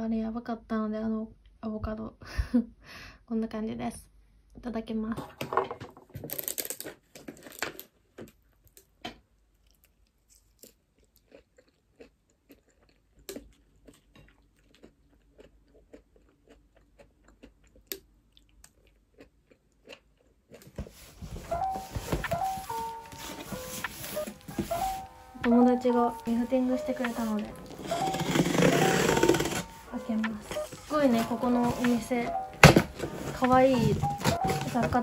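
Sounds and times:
person chewing and crunching: 0:06.4 - 0:21.7.

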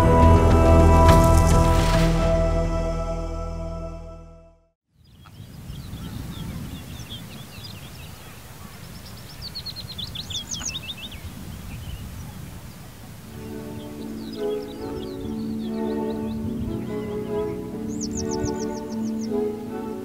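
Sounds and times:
music: 0:00.0 - 0:04.7, 0:13.3 - 0:20.0
small birds chirping: 0:04.9 - 0:20.0
low wind rumble: 0:05.0 - 0:20.0
bird trill: 0:13.3 - 0:20.0.

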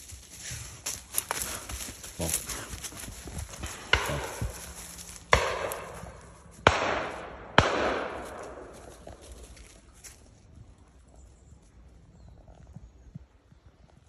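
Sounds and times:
shotgun shots with echo: 0:03.7 - 0:04.7, 0:05.3 - 0:08.8.

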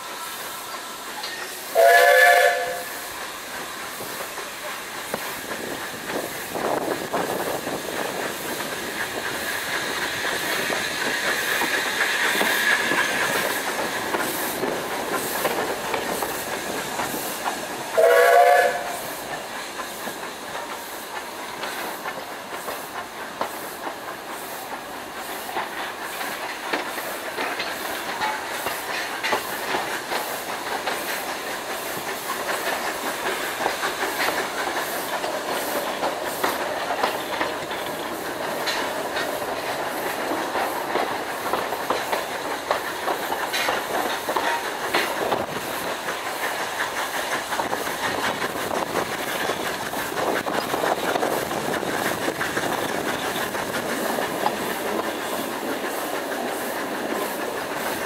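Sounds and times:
steam hiss: 0:00.0 - 0:58.0
steam train running: 0:00.0 - 0:58.0
steam whistle blast: 0:01.7 - 0:03.0, 0:18.0 - 0:19.1
wheels clattering over rail joints: 0:25.5 - 0:58.0.

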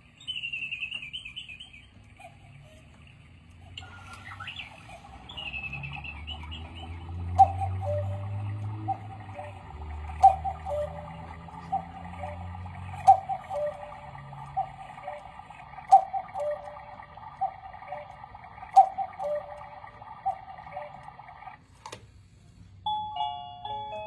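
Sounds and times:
cuckoo clock calling: 0:00.0 - 0:21.7
music box tune: 0:05.1 - 0:18.0, 0:22.8 - 0:24.0
clock clicks: 0:05.7 - 0:22.0.

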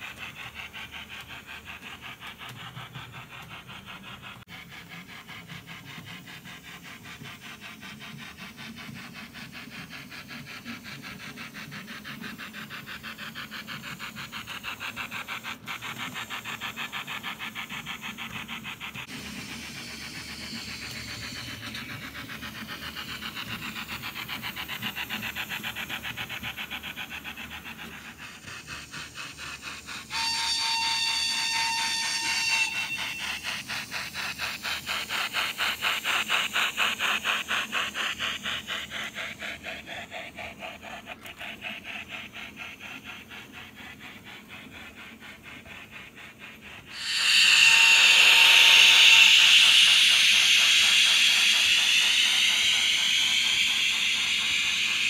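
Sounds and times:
steam locomotive chuffing: 0:00.0 - 0:55.0
train whistle: 0:30.0 - 0:33.8, 0:46.9 - 0:55.0
loud steam hiss: 0:45.5 - 0:55.0.

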